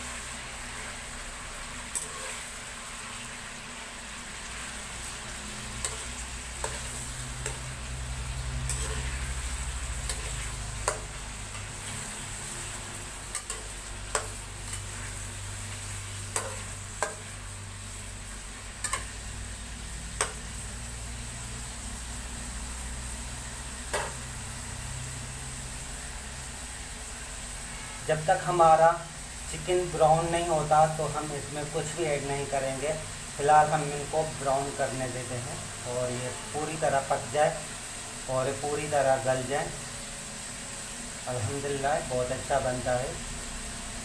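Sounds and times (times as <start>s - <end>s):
chicken sizzling in hot oil: 0.0s - 44.0s
metal spatula scraping a pan: 1.7s - 3.2s, 4.6s - 18.0s, 18.6s - 19.3s.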